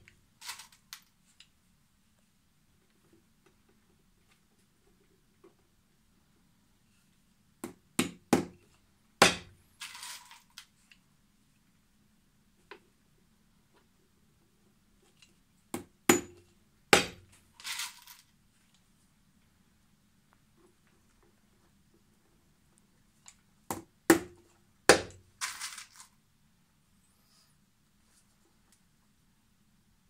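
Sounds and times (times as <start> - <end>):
hammer striking nails: 7.6 - 8.6, 9.2 - 9.6, 15.8 - 17.2, 23.7 - 25.2.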